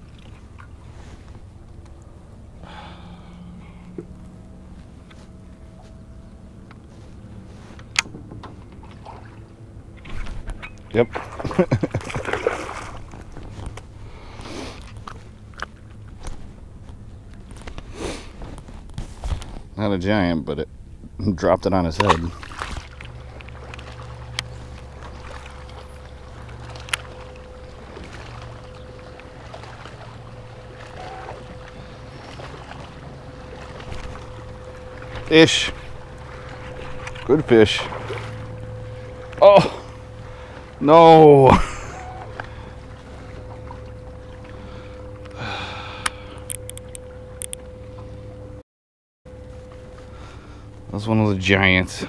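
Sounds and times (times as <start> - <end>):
boat motor humming: 0.0 - 48.6, 49.3 - 52.0
breathy exhale: 2.6 - 4.0, 44.5 - 46.5, 50.1 - 50.8
faint high tone: 36.6 - 47.8
sharp clicks: 46.0 - 47.6.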